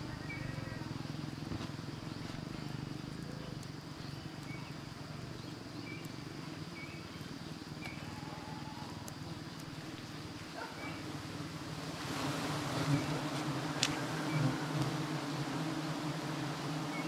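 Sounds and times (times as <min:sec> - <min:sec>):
swarm of bees buzzing: 0:07.8 - 0:17.0.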